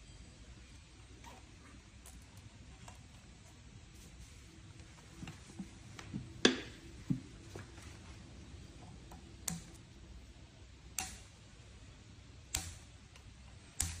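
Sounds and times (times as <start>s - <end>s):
scissors snipping cable ties: 13.8s - 14.0s.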